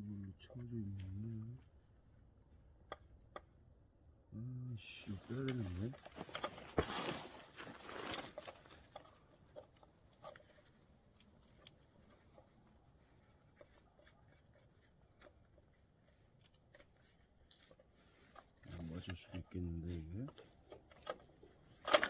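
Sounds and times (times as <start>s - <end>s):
rustling noise: 4.9s - 22.0s.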